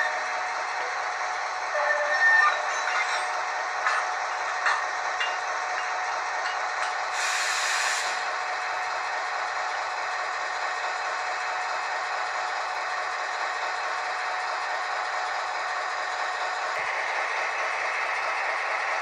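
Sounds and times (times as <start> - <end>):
model locomotive diesel sound: 0.0 - 19.0
air hiss: 7.2 - 8.2.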